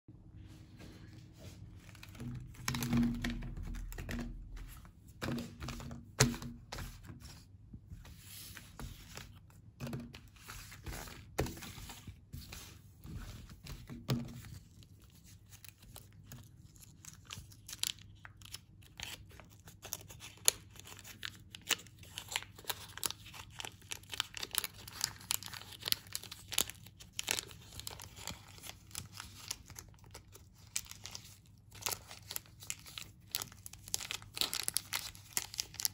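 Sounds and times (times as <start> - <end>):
plastic film crinkling and tearing: 14.6 - 35.9.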